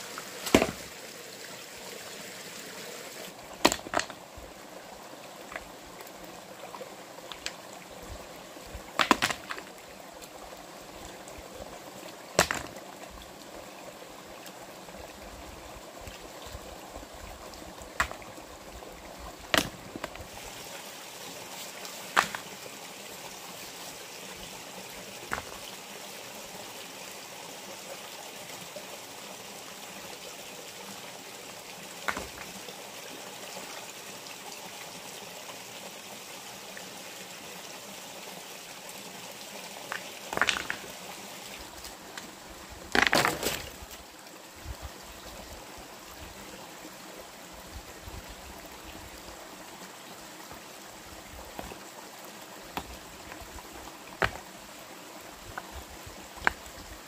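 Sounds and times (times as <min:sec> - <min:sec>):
flowing water rushing: 0:00.0 - 0:57.0.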